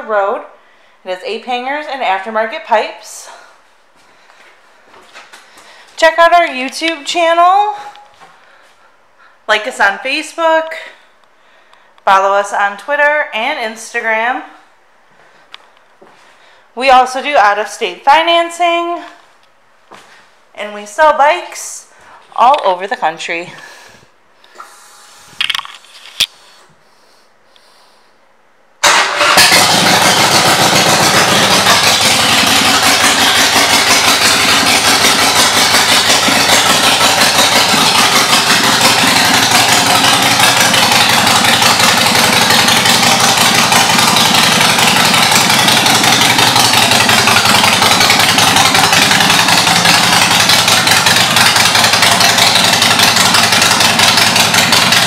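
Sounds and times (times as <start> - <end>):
motorcycle engine starting and idling: 28.8 - 55.0.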